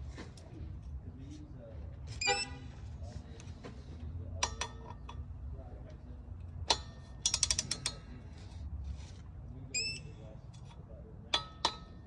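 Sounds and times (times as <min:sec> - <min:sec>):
torque wrench ratchet clicks: 0:07.2 - 0:08.0.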